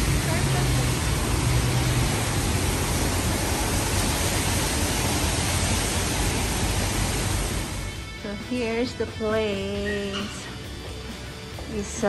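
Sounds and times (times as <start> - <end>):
steady rushing noise: 0.0 - 8.2.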